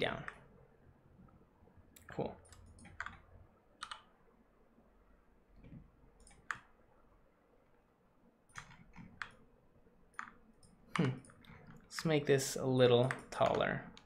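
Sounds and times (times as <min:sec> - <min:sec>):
computer keyboard clicks: 0:02.0 - 0:03.2, 0:03.8 - 0:04.1, 0:06.2 - 0:06.7, 0:08.5 - 0:09.4, 0:10.1 - 0:11.9, 0:13.0 - 0:14.0.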